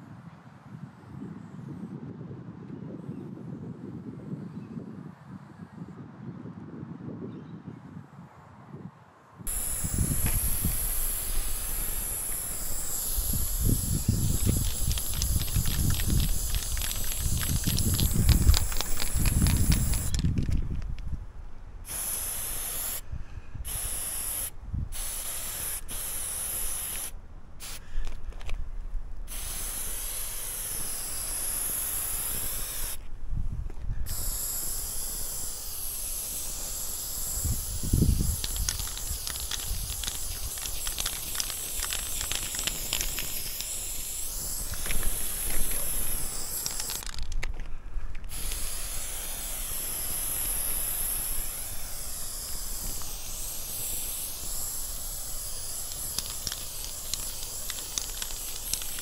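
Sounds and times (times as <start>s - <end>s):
spray paint can hissing: 9.5s - 21.0s, 21.8s - 23.0s, 23.6s - 28.4s, 29.3s - 33.0s, 34.0s - 47.6s, 48.2s - 59.0s
fine ticks: 9.5s - 21.1s, 36.5s - 48.6s, 52.4s - 59.0s.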